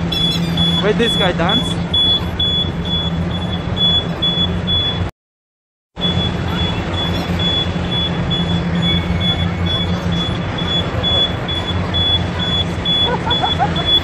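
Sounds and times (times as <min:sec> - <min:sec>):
low drone of city noise: 0:00.0 - 0:05.1, 0:05.9 - 0:14.0
short high-pitched electronic beep: 0:00.1 - 0:05.1, 0:06.0 - 0:14.0.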